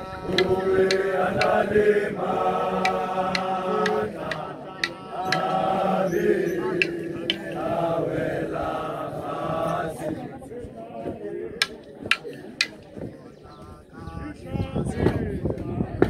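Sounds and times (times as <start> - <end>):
group of voices chanting: 0.0 - 12.8
sharp percussive strikes: 0.3 - 1.6, 2.8 - 5.6, 6.8 - 7.7.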